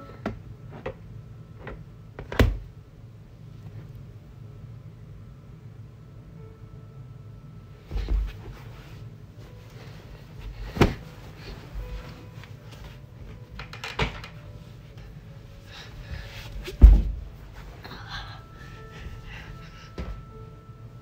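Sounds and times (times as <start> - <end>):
blanket rustling: 8.0 - 13.4
knocks on floor: 16.8 - 17.2
loud low thump: 16.8 - 17.4.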